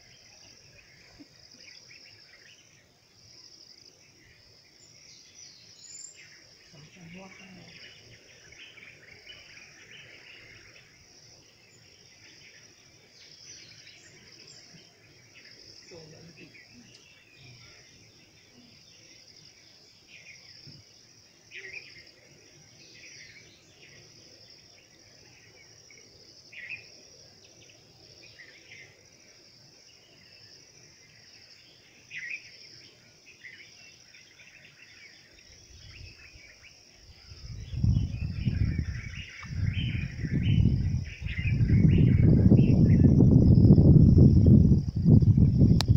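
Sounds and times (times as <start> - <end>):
insects chorus: 0.0 - 45.9
bird chirps: 33.4 - 43.5.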